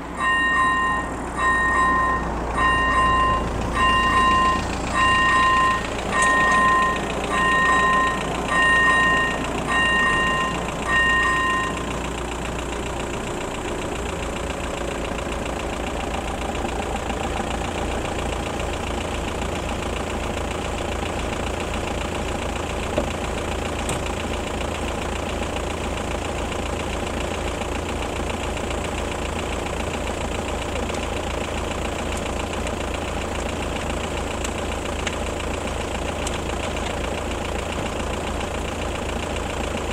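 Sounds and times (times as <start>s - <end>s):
car engine idling: 0.0s - 39.9s
level crossing warning bell: 0.1s - 12.1s.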